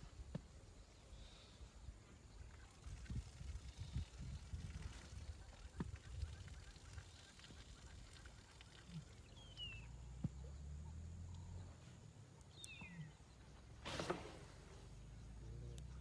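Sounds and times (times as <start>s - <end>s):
faint low rumble: 0.0s - 16.0s
bird chirping: 5.2s - 13.7s.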